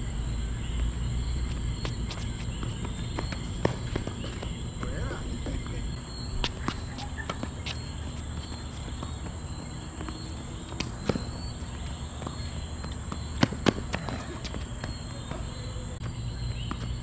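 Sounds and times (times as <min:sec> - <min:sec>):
footsteps on court: 0:00.6 - 0:17.0
balls bouncing on hard court: 0:00.7 - 0:17.0
tennis balls hit by racket: 0:01.4 - 0:15.8.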